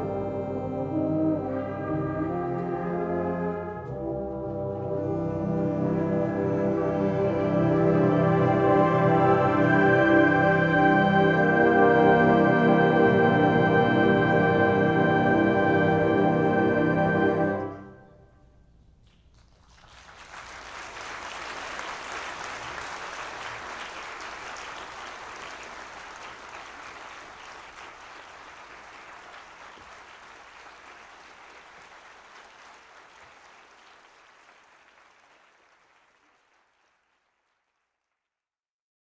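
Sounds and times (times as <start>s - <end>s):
audience applause: 19.0s - 38.1s.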